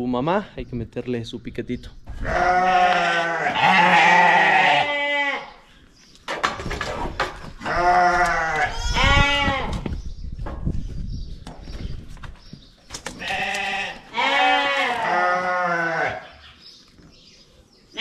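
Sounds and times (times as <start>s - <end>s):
sheep bleating: 2.2s - 5.6s, 7.6s - 9.7s, 13.2s - 16.3s.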